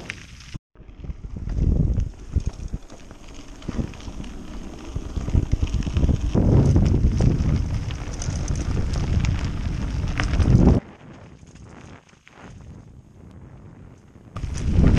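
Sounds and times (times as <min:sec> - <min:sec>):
tyres rolling on dirt: 0:00.0 - 0:12.0
wind rumbling on microphone: 0:00.0 - 0:14.9
bike rattling clicks and knocks: 0:01.4 - 0:11.6.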